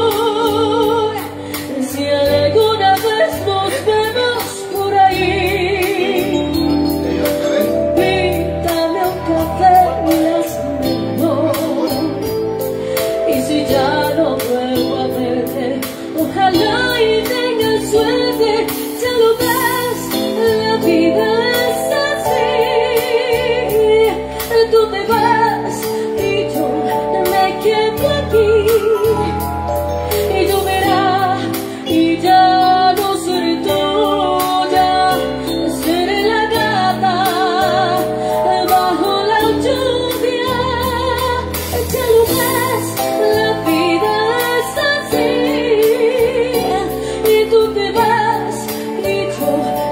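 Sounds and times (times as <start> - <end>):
electronic keyboard: 0.0 - 49.9
woman singing a ballad: 0.0 - 49.9
bass line: 2.0 - 49.9.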